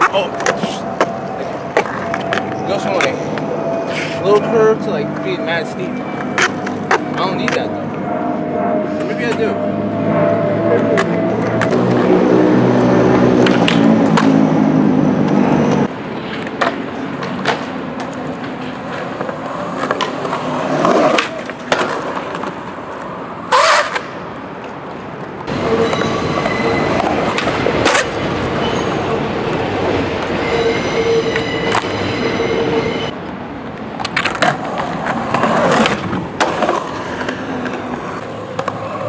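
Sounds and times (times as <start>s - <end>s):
skateboard clacking: 0.0s - 3.5s, 5.9s - 7.8s, 15.2s - 29.0s, 33.6s - 39.0s
skateboard wheels rolling: 0.0s - 39.0s.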